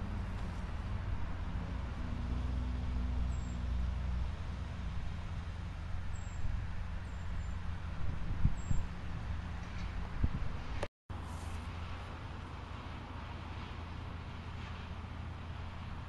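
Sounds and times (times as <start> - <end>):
heavy vehicle engine passing: 0.0 - 6.0
road traffic rumble: 0.0 - 16.0.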